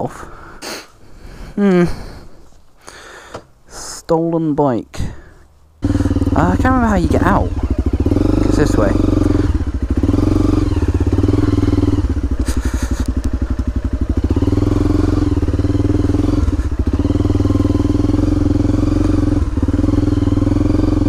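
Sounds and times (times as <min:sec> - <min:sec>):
dirt bike engine running: 0:05.8 - 0:21.0.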